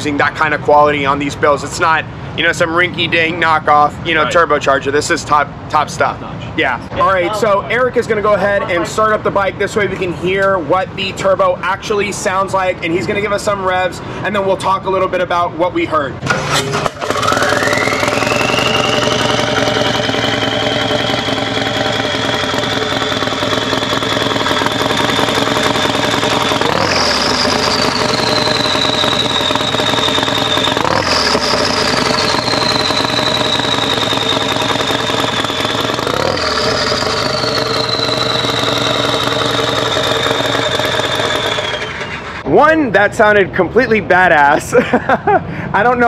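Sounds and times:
engine throttle blips: 0.0s - 6.1s, 16.1s - 42.7s
turbocharger whine: 16.2s - 42.5s
motorcycle engine idling: 17.0s - 42.4s.

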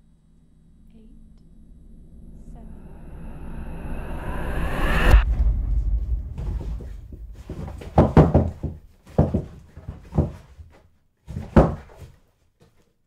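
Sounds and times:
low rumble: 0.0s - 8.1s
heavy thuds and knocks: 5.2s - 12.2s.

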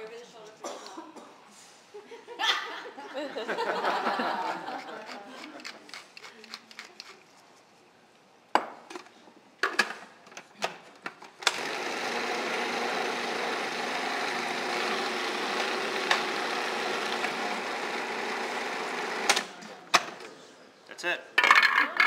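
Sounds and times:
food processor running: 11.4s - 19.5s.

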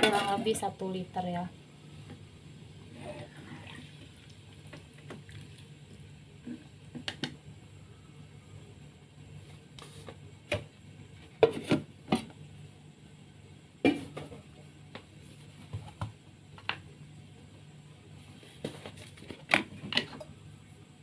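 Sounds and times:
faint low hum: 0.0s - 21.0s.

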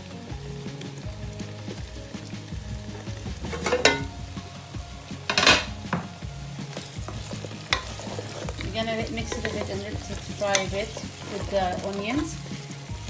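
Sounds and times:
frying sizzle: 0.0s - 13.0s
wooden spoon stirring: 0.6s - 4.1s, 5.3s - 13.0s
ringing clunks against pot: 3.6s - 4.1s.

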